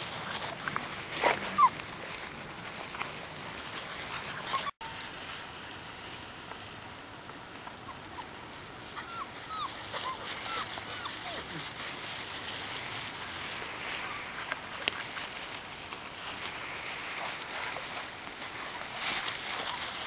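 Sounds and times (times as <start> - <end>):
rustling steps through undergrowth: 0.0 - 20.0
puppies whimpering and yipping: 1.2 - 3.0, 3.6 - 5.0, 7.6 - 11.8, 16.6 - 20.0.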